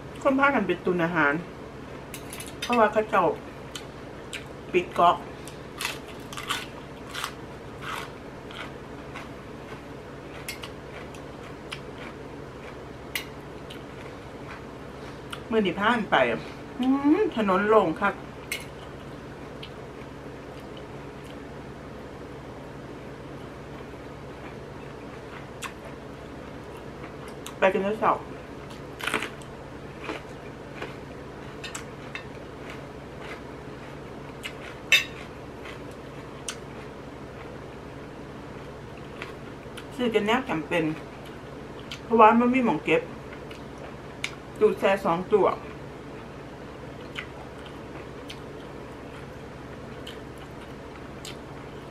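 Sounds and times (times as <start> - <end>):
low steady hum: 0.0 - 51.9
chewing crisp leaf: 5.4 - 15.5, 28.6 - 37.8, 46.9 - 51.8.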